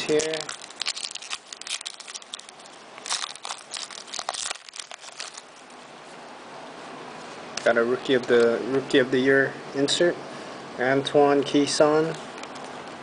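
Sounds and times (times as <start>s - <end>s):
foil wrapper crinkling and tearing: 0.0s - 5.8s.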